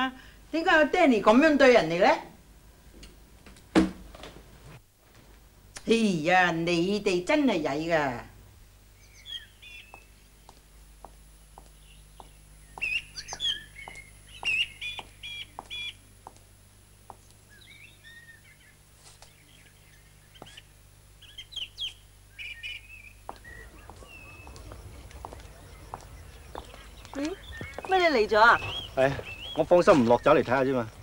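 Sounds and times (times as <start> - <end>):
small birds chirping: 8.8 - 31.0
faint steady ticking: 9.8 - 17.4.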